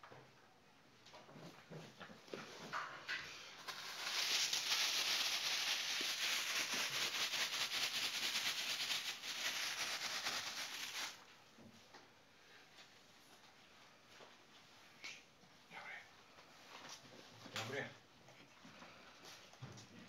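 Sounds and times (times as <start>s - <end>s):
plastic bag crinkling: 3.6s - 11.2s.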